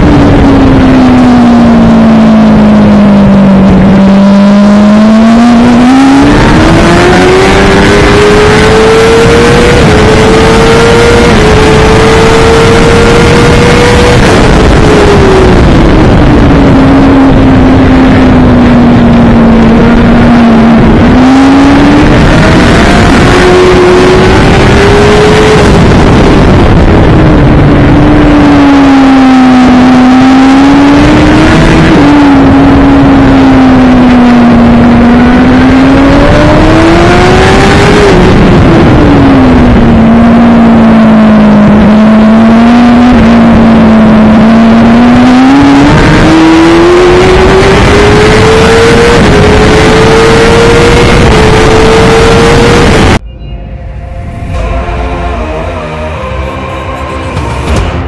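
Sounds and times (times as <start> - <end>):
motorcycle engine at racing speed: 0.0 - 53.3, 57.3 - 58.0
steady rushing noise: 0.0 - 58.0.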